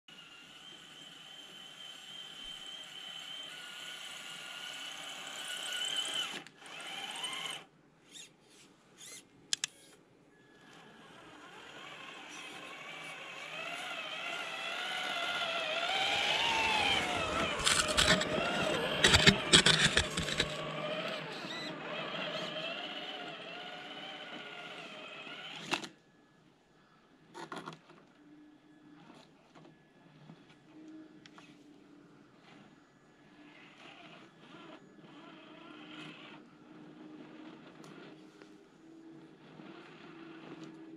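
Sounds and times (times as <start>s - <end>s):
rc truck motor whining: 0.1s - 26.2s, 32.4s - 40.9s
tyres crunching in snow: 12.9s - 23.8s.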